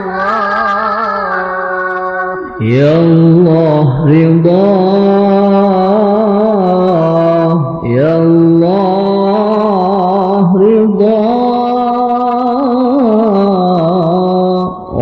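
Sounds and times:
song with long held ornamented notes: 0:00.0 - 0:03.9.

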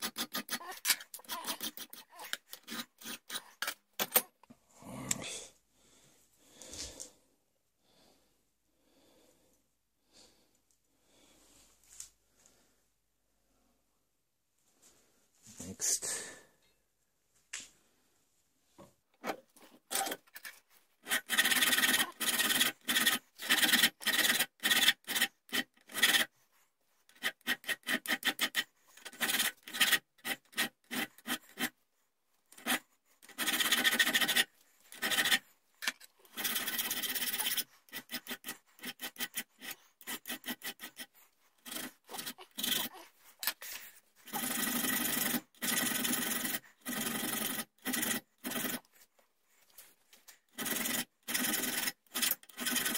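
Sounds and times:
hand file rasping on steel: 0:00.0 - 0:04.3, 0:19.2 - 0:26.4, 0:27.0 - 0:31.8, 0:32.5 - 0:48.9, 0:50.5 - 0:52.9.

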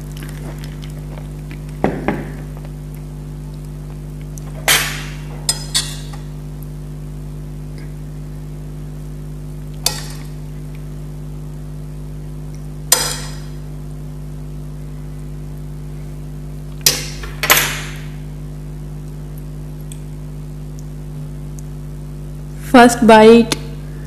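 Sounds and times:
metal spoon clinking on plates: 0:05.5 - 0:06.2.

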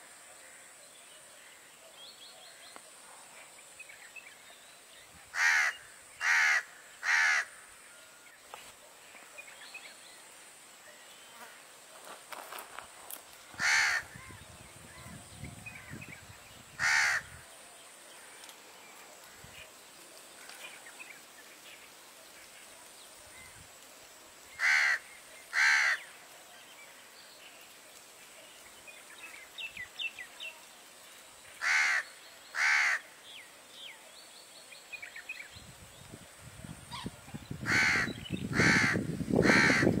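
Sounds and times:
harsh bird calls: 0:16.7 - 0:17.4, 0:36.9 - 0:40.0.

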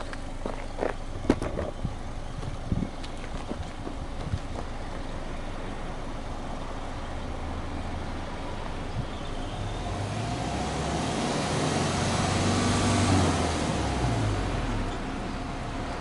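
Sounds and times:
car exhaust engine revving: 0:07.4 - 0:14.9.

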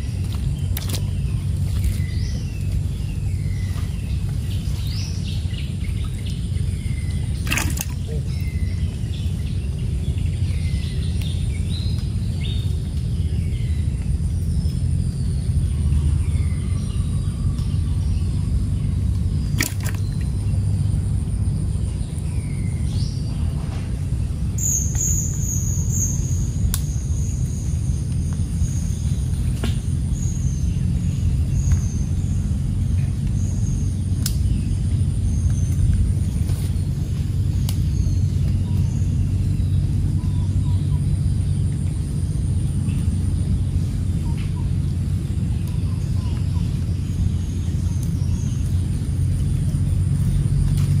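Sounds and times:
low outdoor rumble: 0:00.0 - 0:51.0
bird whistling calls: 0:24.6 - 0:27.6
faint clicks: 0:34.2 - 0:34.4.

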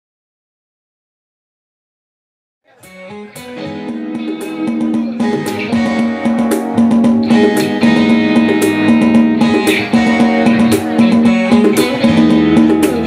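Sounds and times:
electric guitar chords: 0:02.7 - 0:13.0.

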